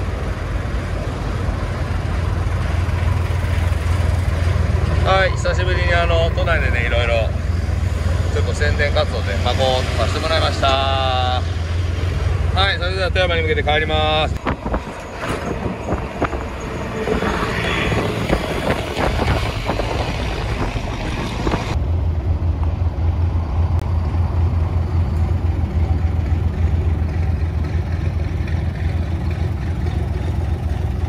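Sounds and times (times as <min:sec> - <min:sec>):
traffic noise: 0:00.0 - 0:31.0
truck diesel engine rumble: 0:00.0 - 0:31.0
wind noise: 0:14.0 - 0:24.0.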